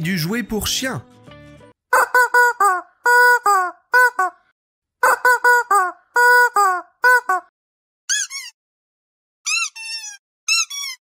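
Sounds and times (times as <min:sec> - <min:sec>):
rubber chicken toy squawking: 0:01.9 - 0:07.5, 0:08.1 - 0:08.6, 0:09.5 - 0:11.0.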